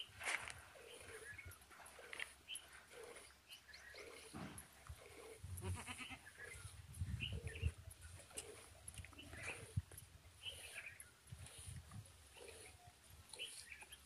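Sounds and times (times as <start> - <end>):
goats bleating: 5.6 - 6.3.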